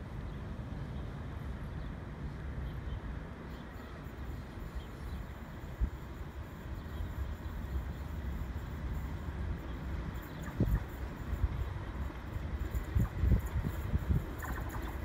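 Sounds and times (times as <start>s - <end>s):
wind thumps on microphone: 10.4s - 11.0s, 12.8s - 15.0s.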